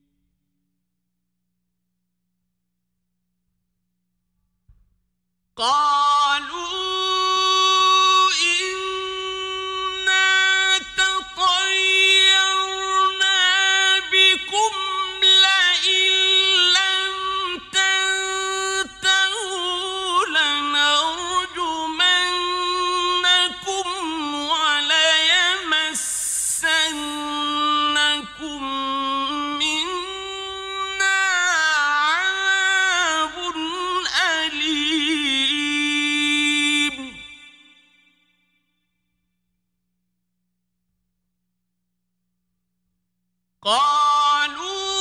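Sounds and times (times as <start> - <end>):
man chanting recitation: 5.6 - 37.4, 43.6 - 45.0.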